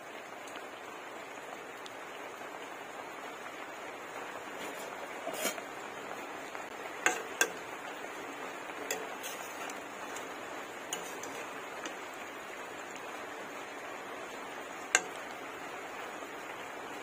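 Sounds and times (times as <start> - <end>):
curry simmering hiss: 0.0 - 17.0
metal spatula knocking on pot: 7.0 - 7.6.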